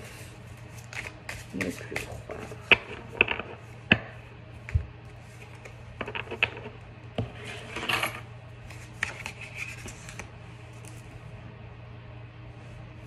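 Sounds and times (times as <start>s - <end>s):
steady low hum: 0.0s - 13.0s
cards shuffling: 0.6s - 3.4s, 8.7s - 11.0s.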